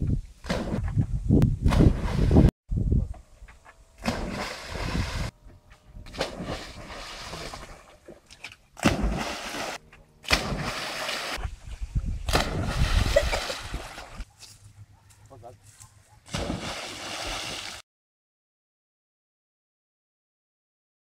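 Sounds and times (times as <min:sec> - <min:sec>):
dog splashing in water: 0:08.8 - 0:11.4, 0:16.2 - 0:17.8.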